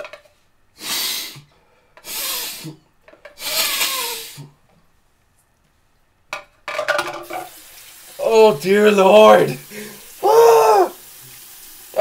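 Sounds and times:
man breathing hard: 9.7s - 10.1s.

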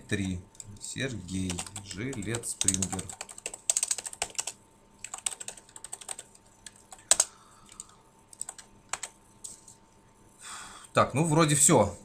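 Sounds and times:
typing on computer keyboard: 1.4s - 9.2s.

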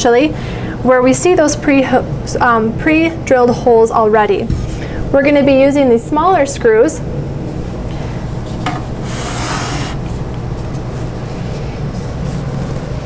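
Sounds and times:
steady low hum: 0.0s - 13.0s
door panel scraping against wood: 8.6s - 10.2s.

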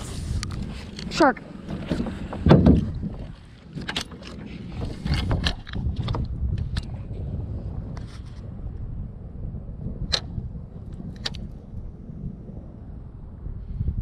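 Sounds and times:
wind rumble on microphone: 0.0s - 14.0s
low thump: 1.7s - 3.3s.

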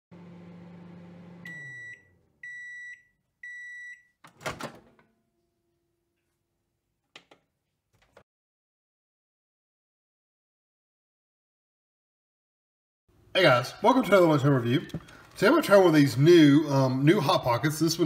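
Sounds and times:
microwave oven humming: 0.1s - 2.8s
high microwave beeps: 1.4s - 4.2s.

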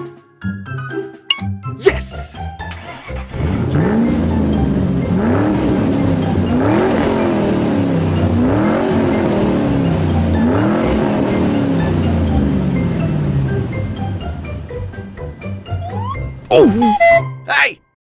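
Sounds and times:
car engine revving: 3.1s - 13.7s.

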